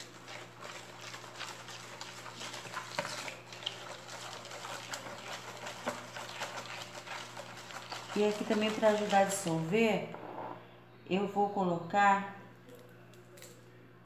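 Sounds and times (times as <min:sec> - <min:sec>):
spoon scraping plastic basin: 0:00.0 - 0:10.6.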